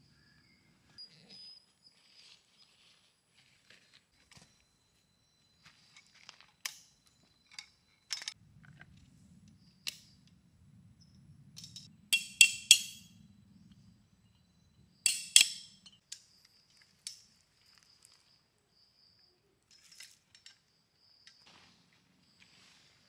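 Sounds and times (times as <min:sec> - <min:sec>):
metallic clinks of tarp poles: 0:11.6 - 0:13.1, 0:15.1 - 0:17.4, 0:19.7 - 0:20.7.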